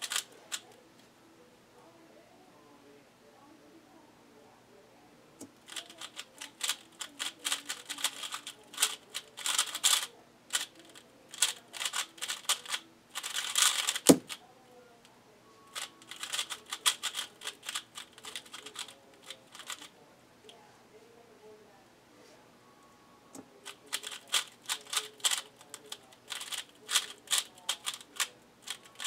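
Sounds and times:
puzzle cube clicking and rattling: 0:00.0 - 0:00.6, 0:05.6 - 0:14.4, 0:15.8 - 0:19.9, 0:23.6 - 0:29.0.

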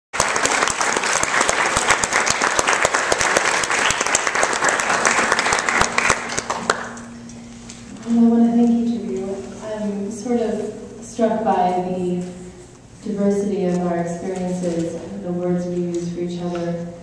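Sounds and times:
crowd applause: 0:00.2 - 0:07.1.

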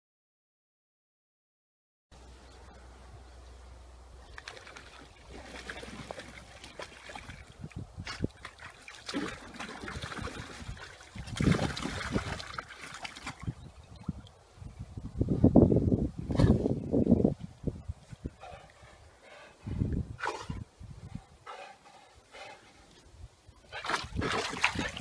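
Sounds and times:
water splashing in paddling pool: 0:04.3 - 0:13.6, 0:23.7 - 0:25.0.

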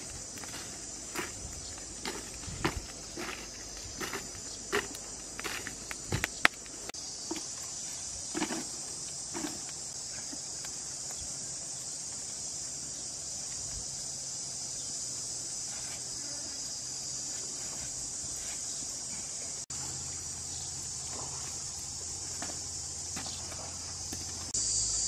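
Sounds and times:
footsteps on grass: 0:00.0 - 0:09.8
high-pitched insect chorus: 0:00.0 - 0:25.0.

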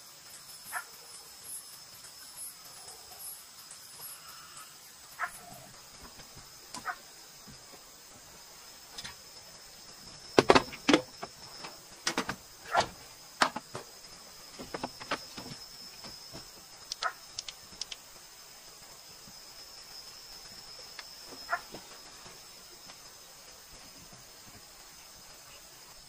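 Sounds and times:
night insects chirping: 0:00.0 - 0:26.0
knocks on bamboo floor: 0:10.4 - 0:11.3.

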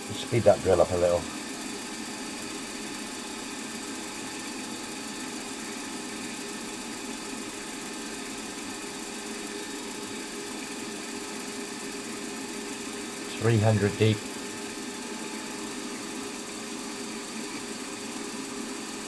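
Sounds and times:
milling machine motor hum: 0:00.0 - 0:19.0.

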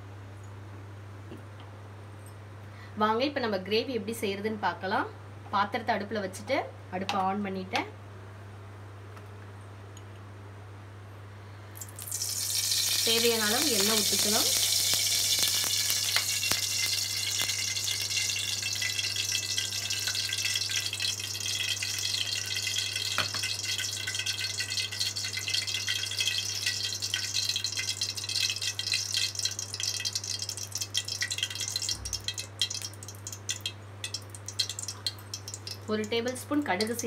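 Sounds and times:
cooking oil sizzling and crackling: 0:11.8 - 0:37.0.

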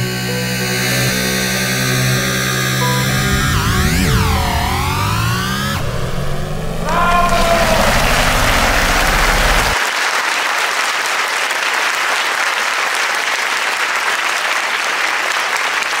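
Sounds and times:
low engine rumble: 0:01.8 - 0:09.8
crowd applause: 0:06.7 - 0:16.0.

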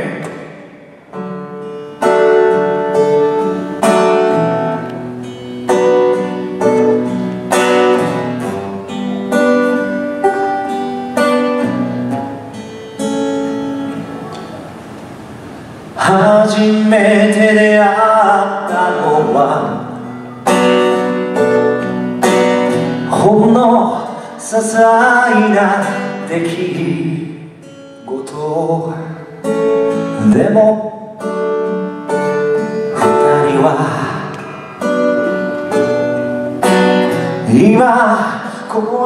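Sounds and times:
man singing: 0:00.0 - 0:00.7, 0:16.0 - 0:20.6, 0:23.0 - 0:31.4, 0:32.1 - 0:35.0, 0:37.4 - 0:39.0
acoustic guitar strumming: 0:00.0 - 0:39.0.

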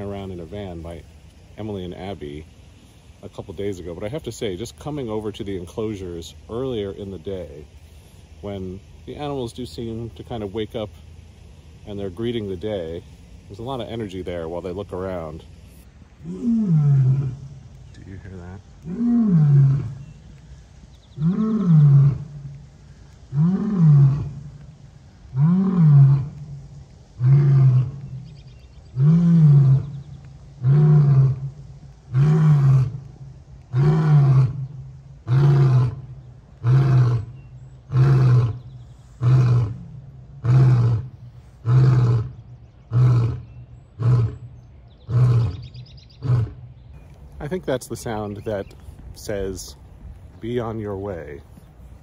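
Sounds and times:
lion roaring: 0:16.2 - 0:17.7, 0:18.8 - 0:20.2, 0:21.2 - 0:22.6, 0:23.3 - 0:24.6, 0:25.3 - 0:26.5, 0:27.2 - 0:28.1, 0:28.9 - 0:44.5, 0:45.1 - 0:46.6.

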